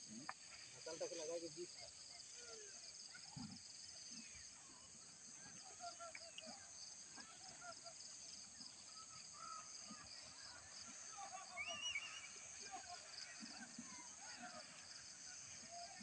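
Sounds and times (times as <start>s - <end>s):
short bird chirps: 11.6s - 12.4s.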